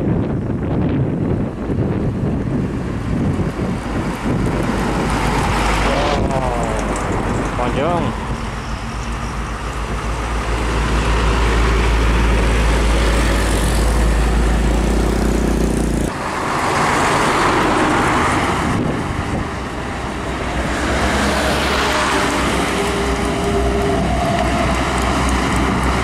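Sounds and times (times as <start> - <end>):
diesel trucks driving past: 0.1 - 26.0.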